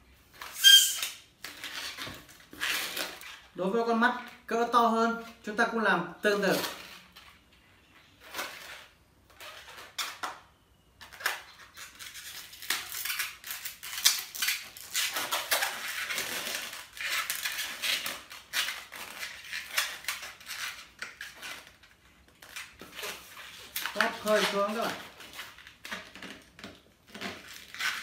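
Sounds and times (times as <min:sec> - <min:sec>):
balloon squeaking and rubbing: 0:00.4 - 0:03.6, 0:11.7 - 0:21.8.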